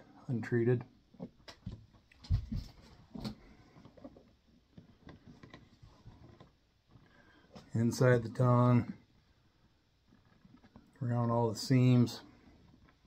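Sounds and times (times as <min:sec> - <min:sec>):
leather boots being handled: 0:01.2 - 0:09.0.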